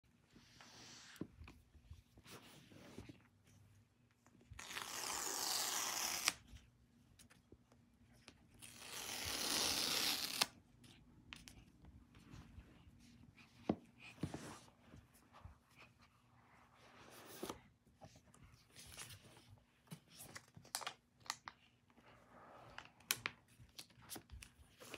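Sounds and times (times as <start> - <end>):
paper strip tearing: 4.6 - 6.4, 8.6 - 10.5.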